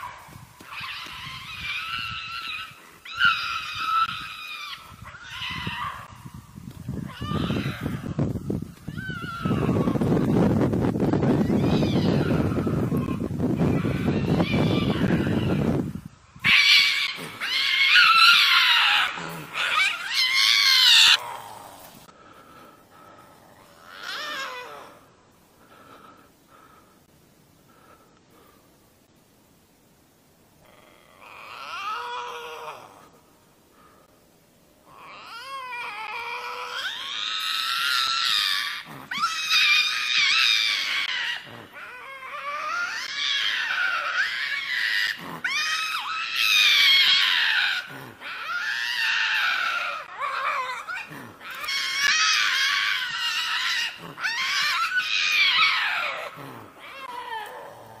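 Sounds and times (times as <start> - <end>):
lynx yowling: 0.0 - 6.2, 7.0 - 8.2, 8.8 - 10.4, 11.4 - 21.6, 23.6 - 25.1, 30.6 - 33.1, 34.9 - 58.0.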